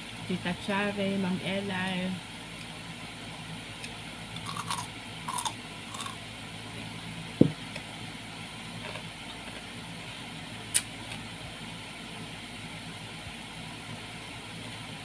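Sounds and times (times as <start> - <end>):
crunching bites into fruit: 3.8 - 6.2
heavy low thump: 7.4 - 7.6.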